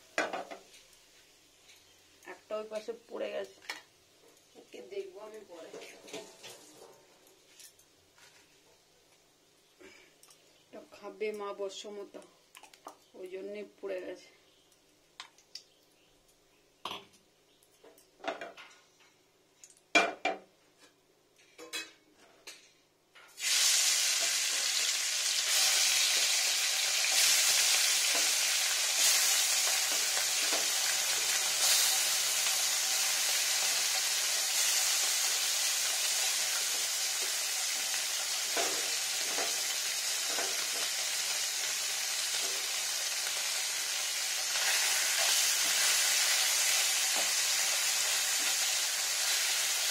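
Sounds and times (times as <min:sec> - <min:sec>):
fish sizzling in hot oil: 0:23.4 - 0:49.9.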